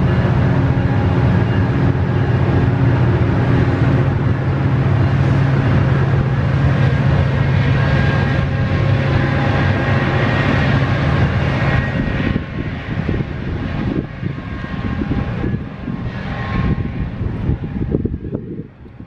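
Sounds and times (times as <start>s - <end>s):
train wheels rumbling on rails: 0.0s - 19.0s.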